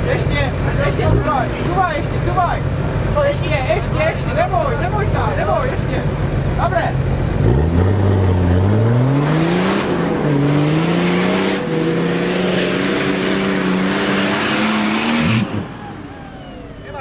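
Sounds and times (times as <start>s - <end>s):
engine revving hard: 7.4s - 15.7s.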